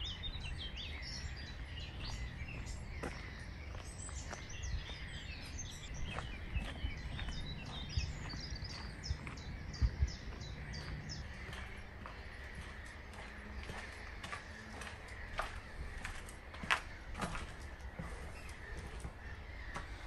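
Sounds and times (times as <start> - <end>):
steady low rumble: 0.0 - 19.8
small birds chirping: 0.0 - 20.0
dull low thumps: 0.3 - 12.7.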